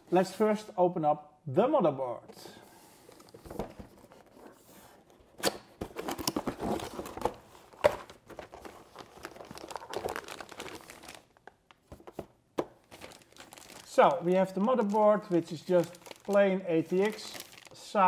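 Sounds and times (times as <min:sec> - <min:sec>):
plastic packaging crinkling: 0:06.0 - 0:17.8.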